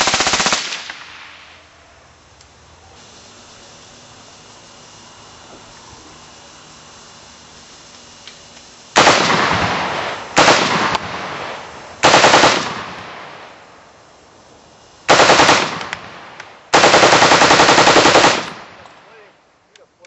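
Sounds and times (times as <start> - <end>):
automatic rifle fire with echo: 0.0 - 1.5, 9.0 - 13.5, 15.1 - 18.8.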